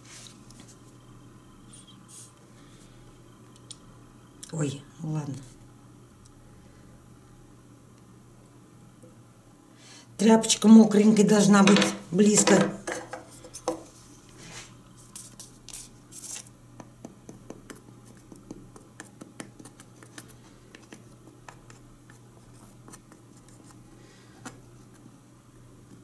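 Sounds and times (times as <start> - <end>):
low steady hum: 0.0 - 26.0
wood pieces knocking: 11.6 - 13.8.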